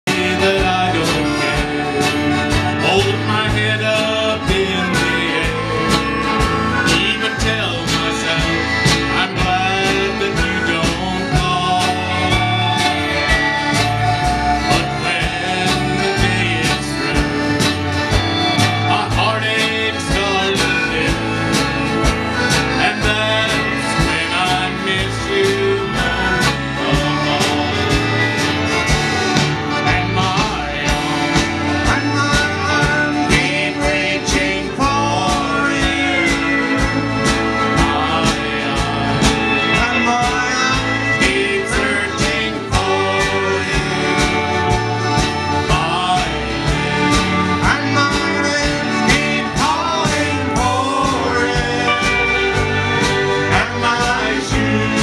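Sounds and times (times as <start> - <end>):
live country band playing: 0.0 - 55.0
man singing: 0.0 - 55.0.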